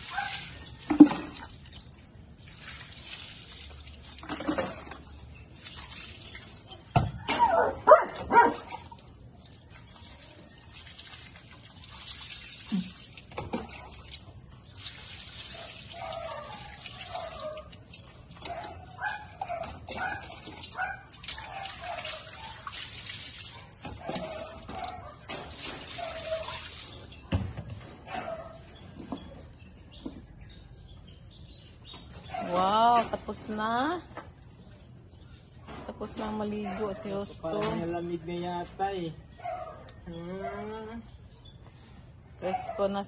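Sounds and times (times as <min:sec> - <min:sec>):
dog yelping: 0:07.2 - 0:08.6, 0:15.6 - 0:17.7, 0:25.9 - 0:26.7
tap water running: 0:08.1 - 0:27.8.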